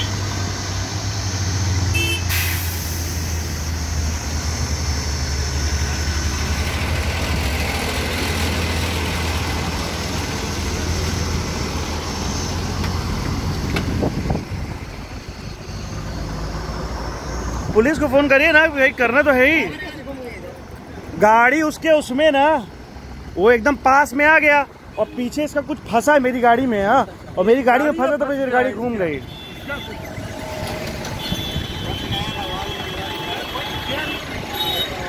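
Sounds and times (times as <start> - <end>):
heavy vehicle engine humming: 0.0 - 35.0
road traffic rushing past: 0.0 - 35.0.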